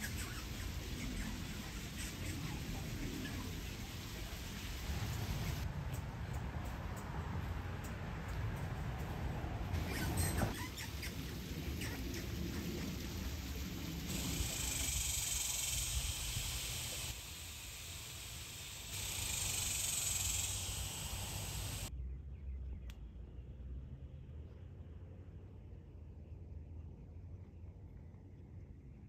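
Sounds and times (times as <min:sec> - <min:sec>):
high insect buzz: 0:14.0 - 0:21.9.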